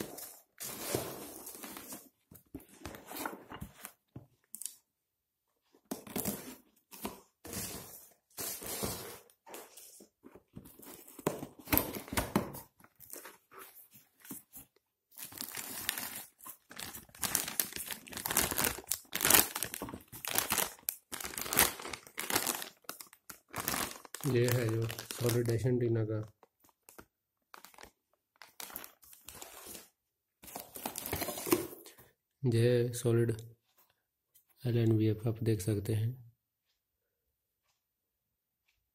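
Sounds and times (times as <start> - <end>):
plastic bag crinkling: 15.2 - 25.6.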